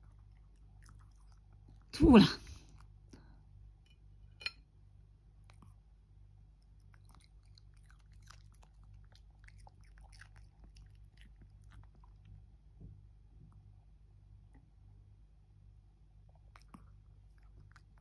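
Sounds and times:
dog chewing crunches: 6.6s - 12.2s.

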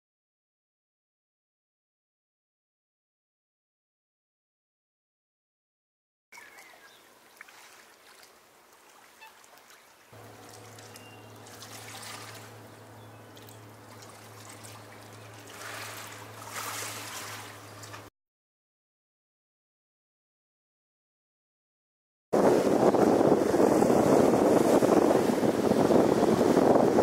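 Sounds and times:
lake water lapping at shore: 6.4s - 18.1s, 22.4s - 27.0s
steady low hum: 10.2s - 18.1s.

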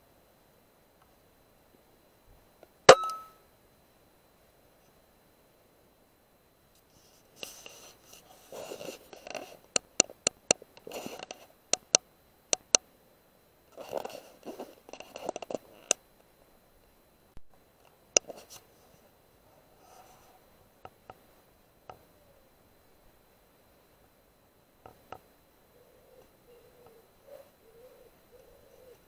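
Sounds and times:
scratching and rustling: 6.8s - 9.7s, 13.8s - 15.9s
sharp clicks: 9.7s - 12.8s.

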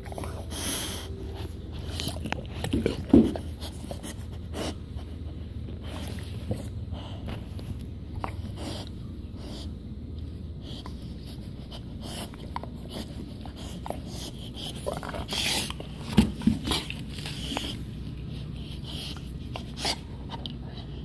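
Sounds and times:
puppy breathing noisily: 0.0s - 21.0s
puppy sniffing and snuffling: 0.0s - 21.0s.

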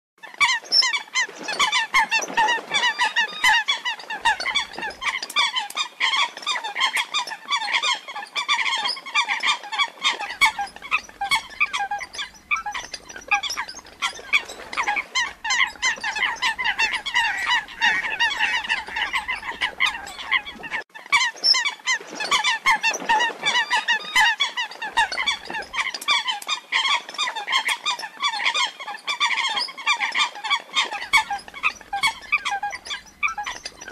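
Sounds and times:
coot calling: 15.0s - 20.8s.

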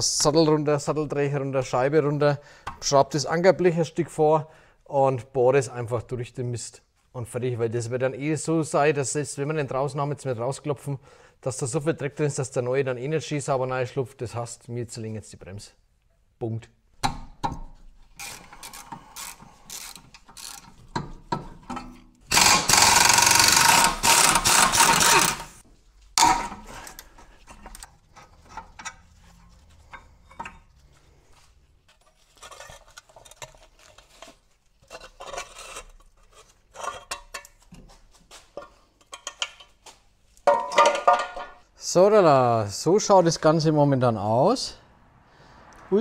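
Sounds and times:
pneumatic wrench running: 22.3s - 25.6s
metal parts and tools clinking: 26.2s - 30.8s, 38.6s - 41.6s.

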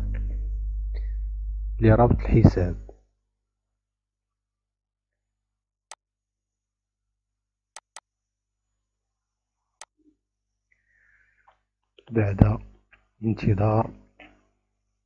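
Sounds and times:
computer mouse clicks: 7.8s - 8.0s.

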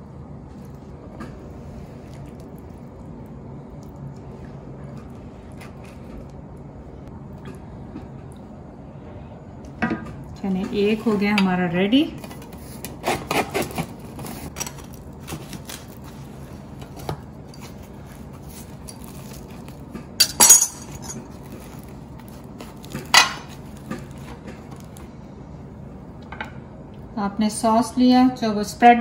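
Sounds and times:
metal utensil clinking on ceramic: 20.2s - 21.2s
utensil clattering: 20.2s - 21.4s.

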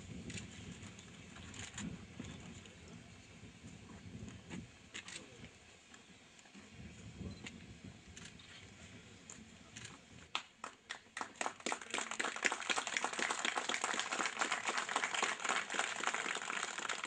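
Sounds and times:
crowd applauding: 10.3s - 17.0s.

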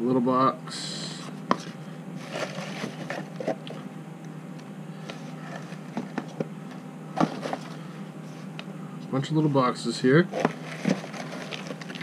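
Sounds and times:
low hum: 0.0s - 12.0s
cardboard boxes handled: 1.5s - 3.8s, 5.1s - 7.8s, 10.3s - 12.0s
shredded paper rustling: 2.2s - 3.6s, 7.2s - 7.9s, 10.3s - 12.0s.

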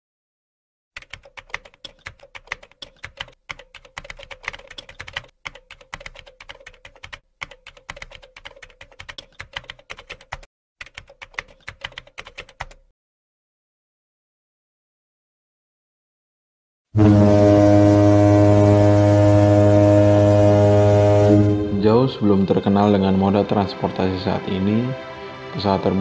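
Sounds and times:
keyboard keystroke clicks: 1.0s - 12.8s.

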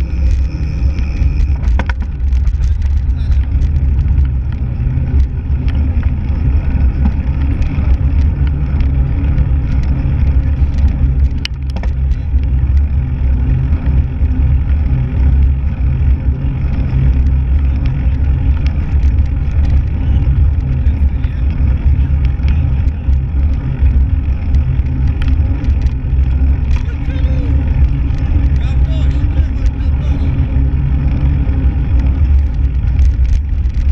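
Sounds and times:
bike rattles from bumps: 0.0s - 33.9s
tyre noise on rough road: 0.0s - 33.9s
wind buffeting microphone: 0.0s - 33.9s.

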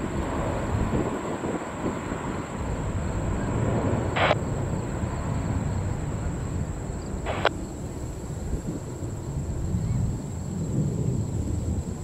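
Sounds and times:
distant jet engines rumbling: 0.0s - 12.0s
radio squelch bursts: 4.2s - 4.4s, 7.3s - 7.5s.

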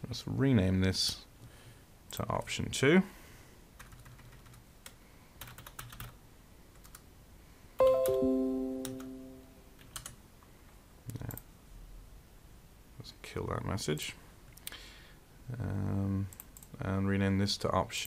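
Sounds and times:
computer notification chime: 7.8s - 9.7s
keyboard typing clicks: 7.8s - 10.2s.

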